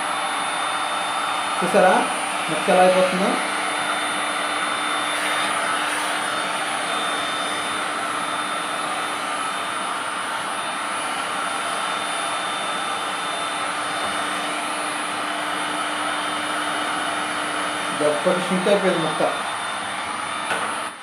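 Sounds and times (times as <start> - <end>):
heat gun blowing air: 0.0 - 21.0.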